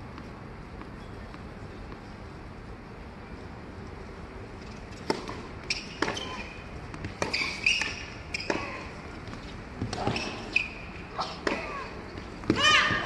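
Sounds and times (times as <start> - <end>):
racket strikes and ball bounces: 4.6 - 13.0
shoe squeaks: 5.7 - 6.6, 7.2 - 8.9, 10.0 - 11.4.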